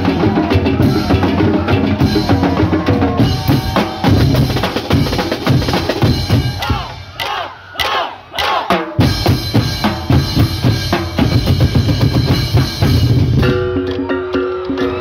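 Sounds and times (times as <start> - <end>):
fast drumming: 0.0 - 15.0
players shouting together: 6.3 - 8.9.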